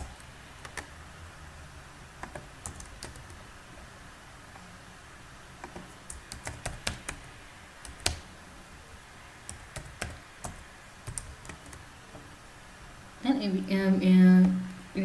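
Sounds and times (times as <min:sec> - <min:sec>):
typing on keyboard: 0:00.0 - 0:00.9, 0:02.2 - 0:03.4, 0:05.6 - 0:08.2, 0:09.5 - 0:11.8.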